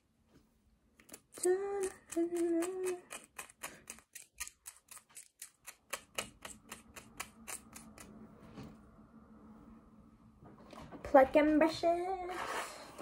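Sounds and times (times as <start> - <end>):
tweezers clicking: 1.0 - 8.1
person humming: 1.3 - 3.4.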